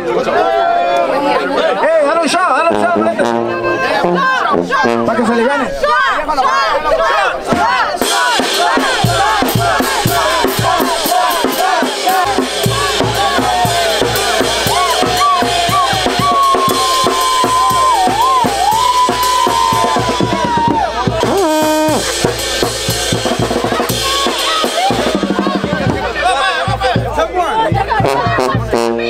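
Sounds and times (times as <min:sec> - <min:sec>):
brass band playing: 0:02.5 - 0:29.0
long held high note: 0:02.7 - 0:05.1
bass drum snare and cymbals: 0:07.5 - 0:29.0.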